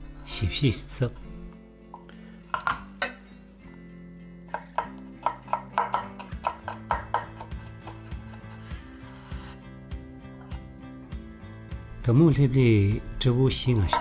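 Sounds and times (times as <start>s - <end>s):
cleaver chopping on cutting board: 4.5s - 9.5s.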